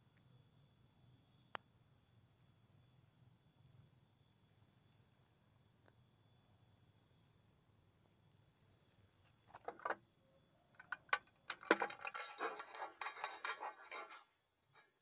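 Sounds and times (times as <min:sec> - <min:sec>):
plastic box clicking and rattling: 0:10.8 - 0:13.9.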